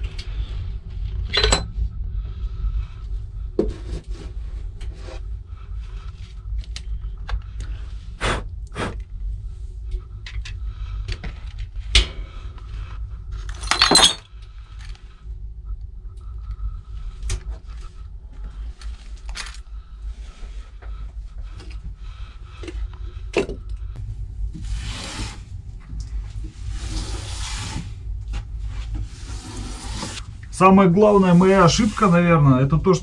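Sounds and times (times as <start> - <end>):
steady low rumble: 0.0 - 33.0
rattling clatter: 13.4 - 14.3.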